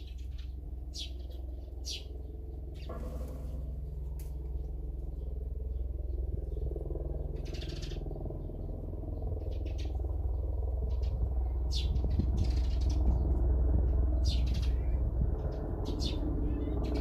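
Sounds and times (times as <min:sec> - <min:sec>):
songbird chirping: 0:00.0 - 0:06.7
low rumble: 0:00.0 - 0:17.0.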